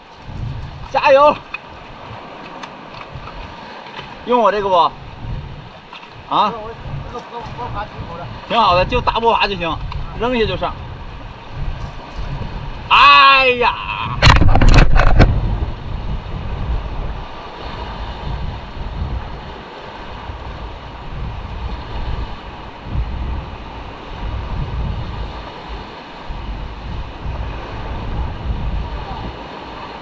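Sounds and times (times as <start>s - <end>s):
small waves breaking on rocks: 0.0s - 15.6s, 17.0s - 30.0s
wind buffeting microphone: 0.0s - 30.0s.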